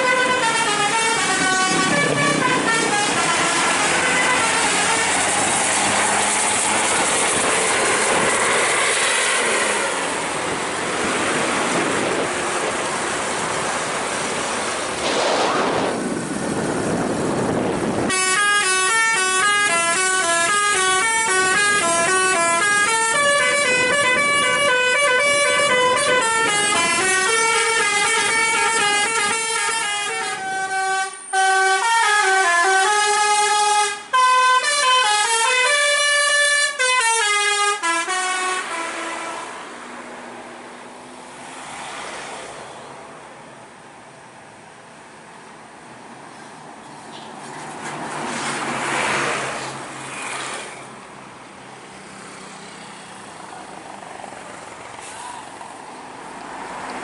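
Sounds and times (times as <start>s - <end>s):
multi-tone bus horn tune: 0.0s - 5.6s, 18.0s - 39.8s
steady rushing noise: 1.4s - 18.1s.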